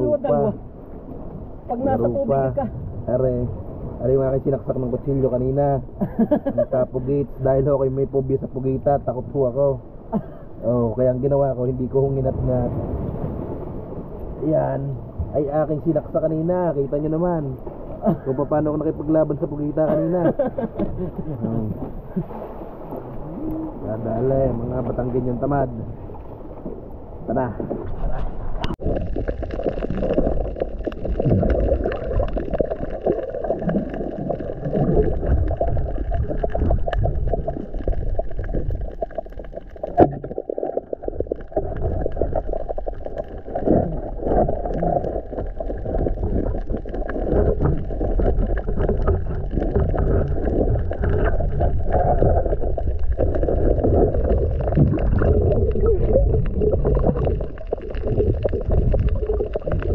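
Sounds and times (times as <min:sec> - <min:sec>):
muffled underwater rumble: 0:00.0 - 0:59.9
water gurgling: 0:00.0 - 0:59.9.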